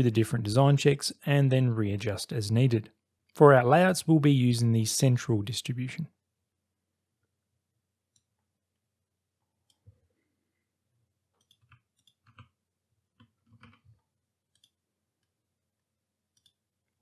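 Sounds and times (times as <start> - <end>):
computer mouse clicks: 11.4 - 12.6, 13.2 - 15.3, 16.3 - 16.6.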